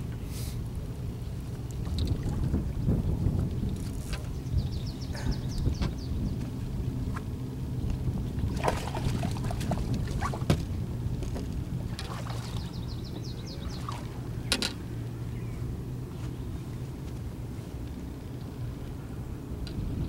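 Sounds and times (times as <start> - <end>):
low motor hum: 0.0 - 20.0
water splashing against boat: 0.1 - 18.2
knocks on boat: 8.6 - 11.5.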